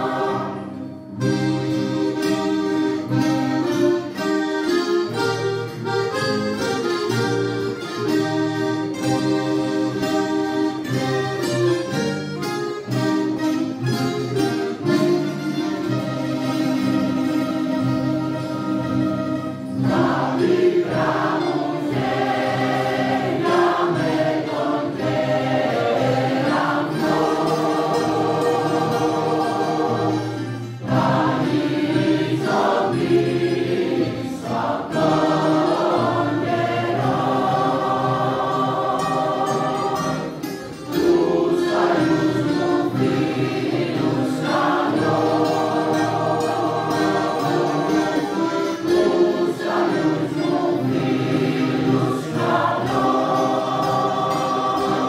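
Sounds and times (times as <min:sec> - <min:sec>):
mixed choir singing: 0:00.0 - 0:01.9, 0:19.6 - 0:55.0
mandolin ensemble with accordion: 0:00.0 - 0:55.0.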